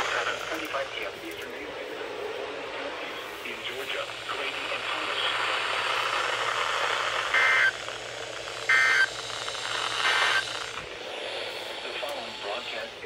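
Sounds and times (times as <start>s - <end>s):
digital data bursts: 0.0s - 1.3s, 3.2s - 10.8s
radio static hiss: 0.0s - 13.0s.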